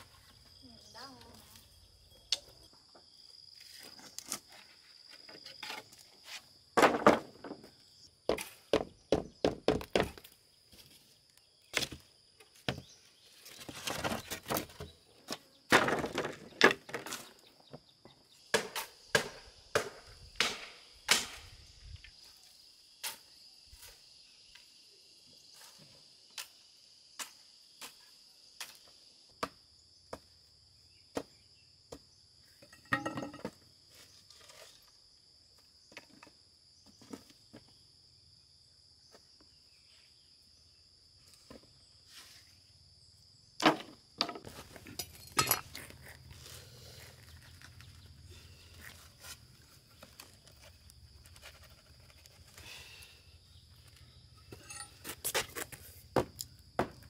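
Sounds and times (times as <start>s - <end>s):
hand tool chopping knocks: 8.3s - 10.2s.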